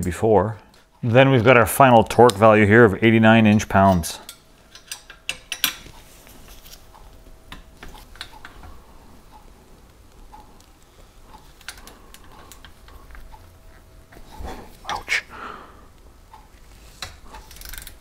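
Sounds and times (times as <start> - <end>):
metallic clicks of wrench and nuts: 4.2 - 5.9, 17.0 - 18.0.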